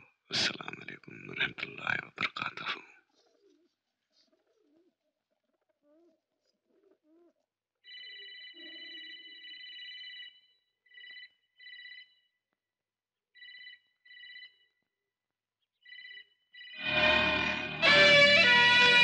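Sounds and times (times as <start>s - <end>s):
electronic telephone ringing: 7.9s - 12.2s, 13.4s - 14.6s.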